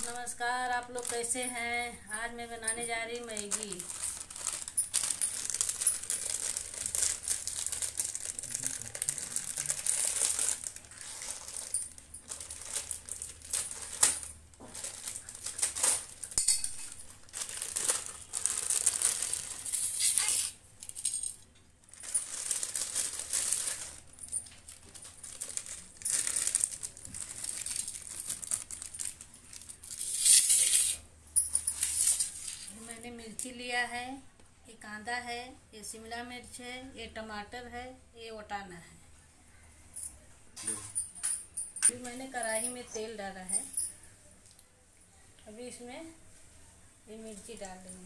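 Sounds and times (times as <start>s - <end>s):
plastic wrapper crinkling: 0.0s - 1.8s, 2.7s - 31.0s, 31.6s - 33.0s.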